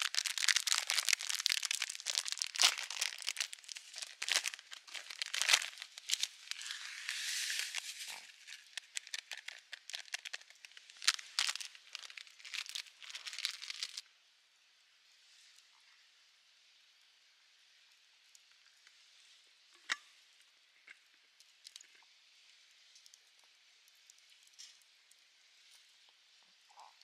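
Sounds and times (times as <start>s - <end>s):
granules pouring into wooden bowl: 0.0s - 14.0s
plastic pouch crinkling: 0.0s - 14.0s.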